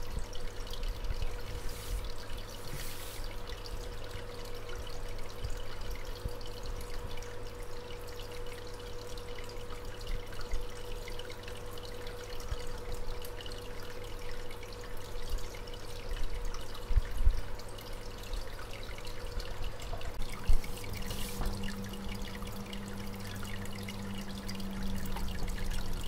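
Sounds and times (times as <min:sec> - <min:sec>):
water trickling and splashing: 0:00.0 - 0:26.0
steady hum: 0:00.9 - 0:05.8, 0:19.0 - 0:26.0.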